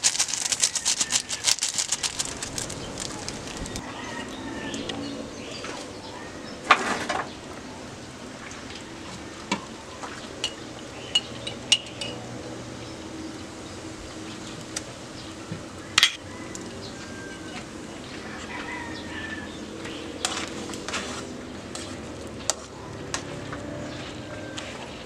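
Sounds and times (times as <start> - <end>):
metal spoon clinking on glass jar: 11.2 - 12.2.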